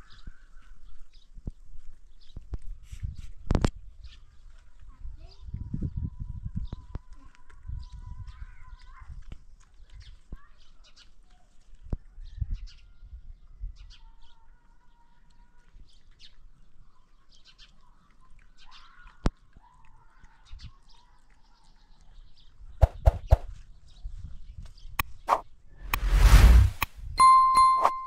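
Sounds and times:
loud sharp knocks: 22.8s - 23.4s.

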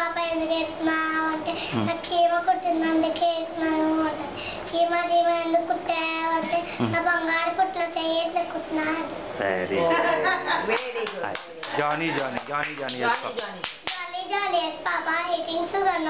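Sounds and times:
boy singing: 0.0s - 9.1s, 14.0s - 16.0s.

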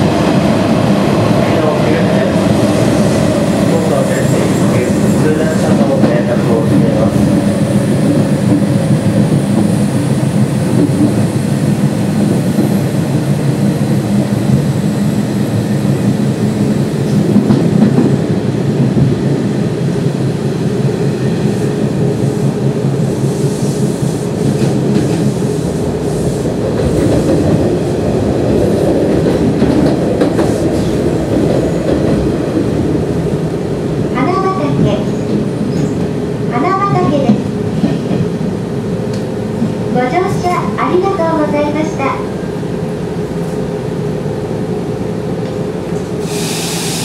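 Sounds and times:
train wheels rumbling on rails: 0.0s - 47.0s.

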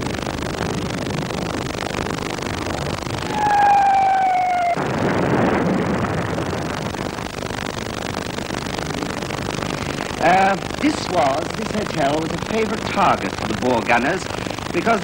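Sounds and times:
steady hiss: 0.0s - 15.0s
artillery shell whistling: 3.2s - 5.0s.

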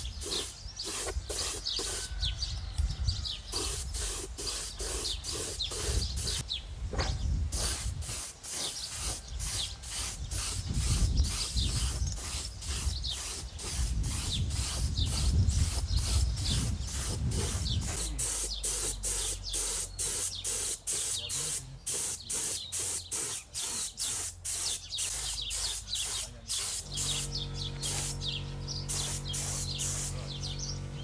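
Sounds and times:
spray gun hissing in pulses: 0.0s - 2.1s, 3.5s - 6.4s, 7.5s - 30.7s.

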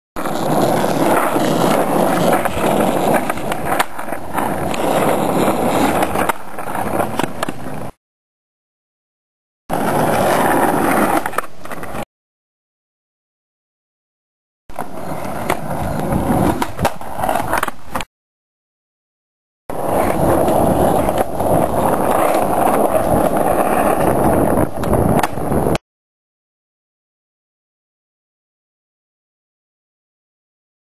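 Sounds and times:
skateboard clacks: 0.2s - 8.0s, 9.7s - 12.0s, 14.7s - 18.1s, 19.7s - 25.8s
skateboard wheels rolling: 0.2s - 8.0s, 9.7s - 12.0s, 14.7s - 18.1s, 19.7s - 25.8s.

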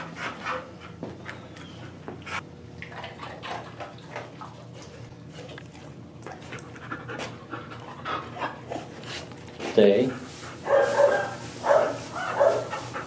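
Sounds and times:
dog panting: 0.0s - 2.4s, 6.2s - 13.0s.

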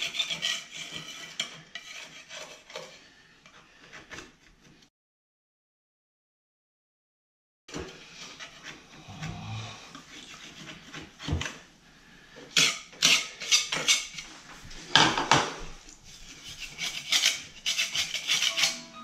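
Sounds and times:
scraper knife scraping drywall: 0.0s - 4.9s, 7.7s - 11.7s, 12.5s - 14.5s, 16.1s - 18.9s.

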